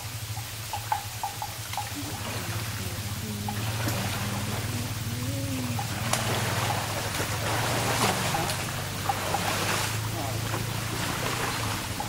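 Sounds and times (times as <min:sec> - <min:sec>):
elephant splashing through water: 0:00.0 - 0:12.0.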